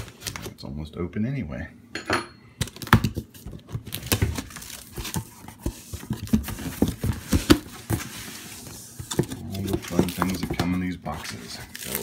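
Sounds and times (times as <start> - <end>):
cardboard box being opened: 3.3 - 12.0.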